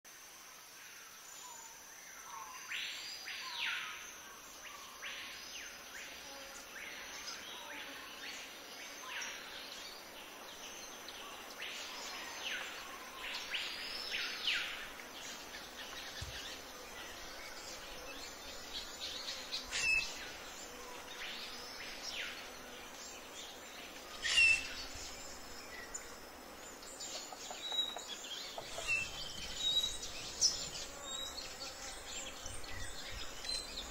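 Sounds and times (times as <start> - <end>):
high insect buzz: 0.1 - 33.9
bird whistled call: 24.2 - 24.7.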